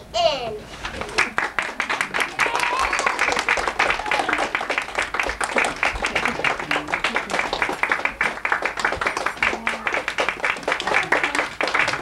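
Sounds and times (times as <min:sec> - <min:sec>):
audience applauding: 0:01.0 - 0:12.0
voices: 0:09.3 - 0:12.0.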